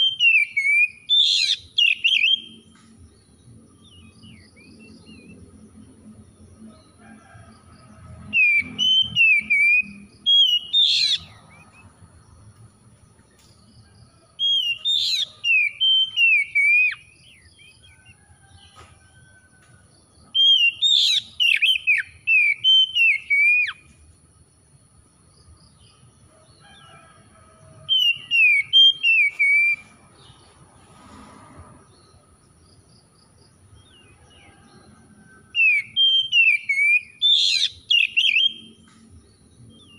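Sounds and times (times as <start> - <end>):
bird singing whistled phrases: 0.0 - 2.6, 8.4 - 11.4, 14.5 - 17.1, 20.4 - 23.8, 27.9 - 29.9, 35.6 - 38.7.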